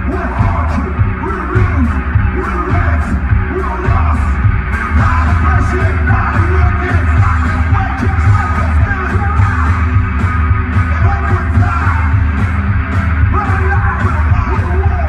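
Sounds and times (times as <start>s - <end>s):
drum kit beat: 0.0s - 15.0s.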